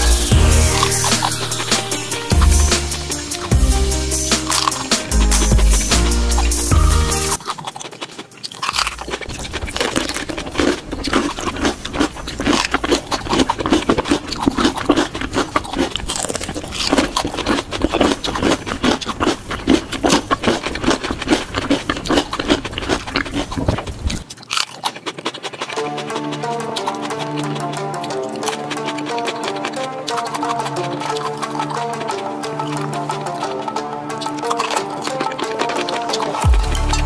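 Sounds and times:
crunching raw vegetables: 0.0s - 37.0s
wet chewing: 0.0s - 37.0s.

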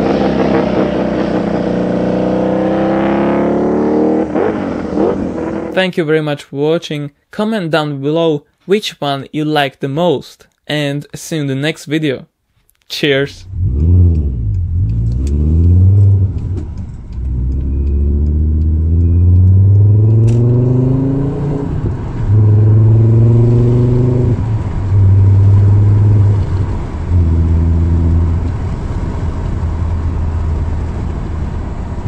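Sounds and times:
engine revving: 0.0s - 5.8s, 13.4s - 30.8s.

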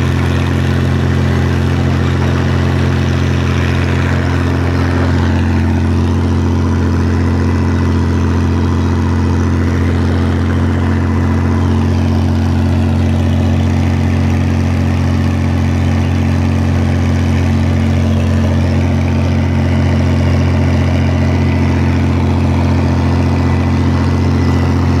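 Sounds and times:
tractor diesel engine running: 0.0s - 25.0s.

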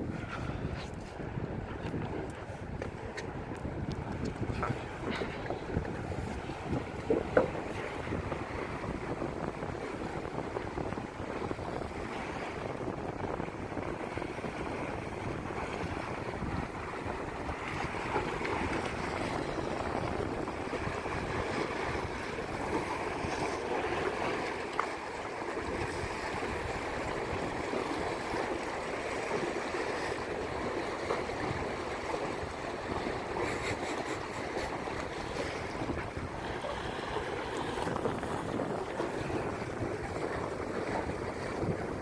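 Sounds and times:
wind noise on microphone: 0.0s - 42.0s
waves washing against boulders: 1.6s - 42.0s.

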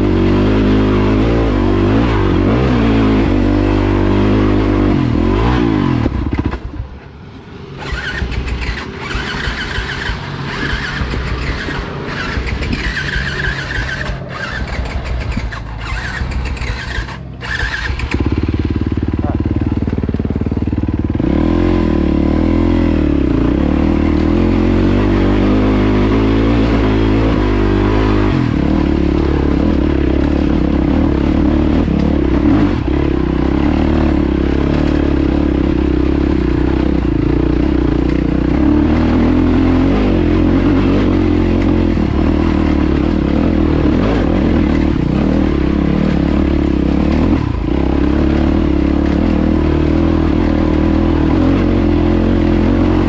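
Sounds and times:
dirt bike engine under load: 7.8s - 20.7s.

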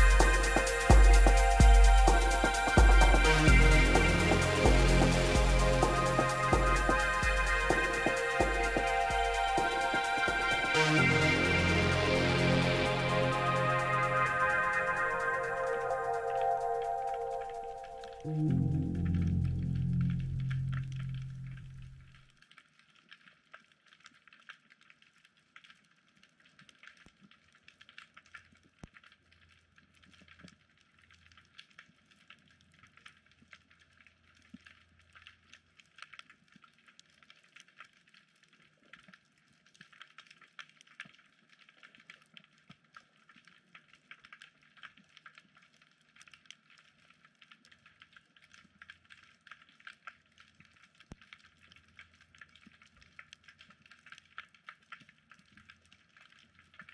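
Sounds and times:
snapping shrimp crackling underwater: 20.4s - 56.9s.

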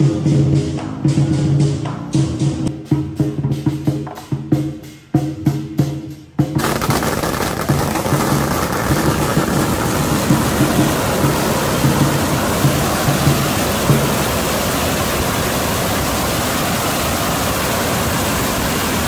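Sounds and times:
procession music with drum beats: 0.0s - 14.4s
firecrackers crackling: 6.5s - 19.0s.

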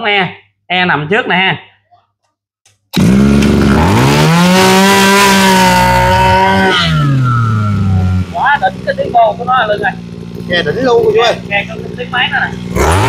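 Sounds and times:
brush cutter engine revving: 2.9s - 13.0s.

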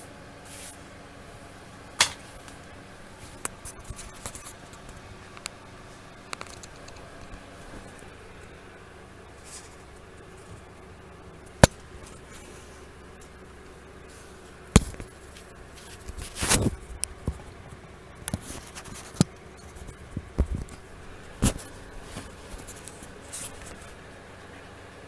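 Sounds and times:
camera brushing rustles: 3.2s - 5.0s, 14.0s - 16.9s, 18.4s - 24.0s.

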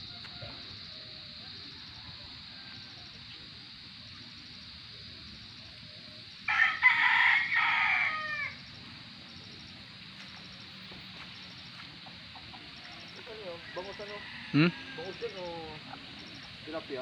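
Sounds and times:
rooster crowing: 0.0s - 3.2s, 6.5s - 8.7s, 12.6s - 16.3s.

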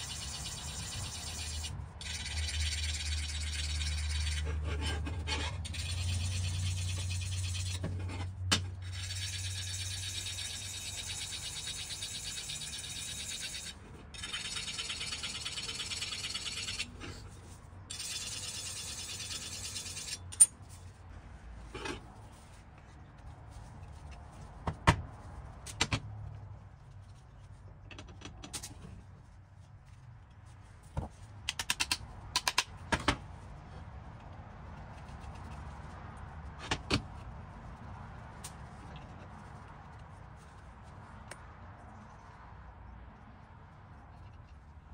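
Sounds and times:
axe blade rasping scrape: 0.0s - 20.5s
metallic clicks and taps: 31.5s - 32.7s.

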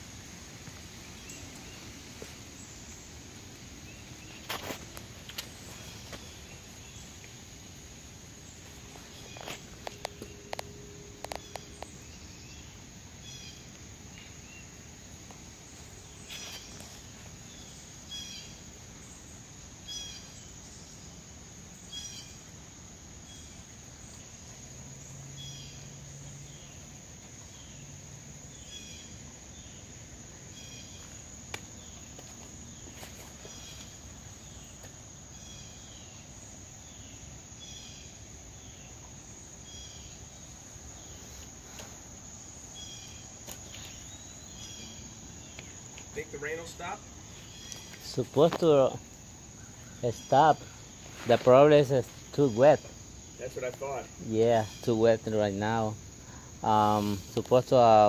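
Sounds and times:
insects droning: 0.0s - 58.0s
bird chirping: 8.4s - 14.8s, 15.7s - 21.2s, 42.6s - 58.0s.

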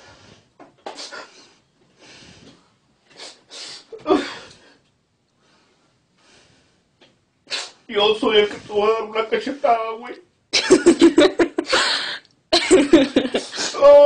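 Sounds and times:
man sobbing: 10.6s - 14.0s.

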